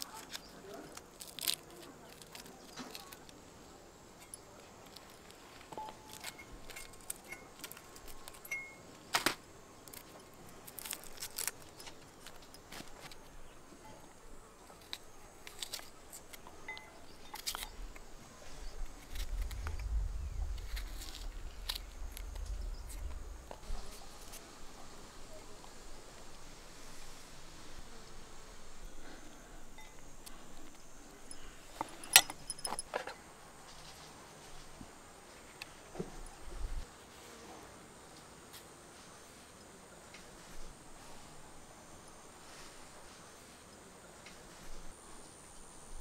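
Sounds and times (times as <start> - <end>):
low rumble: 18.7 - 24.8.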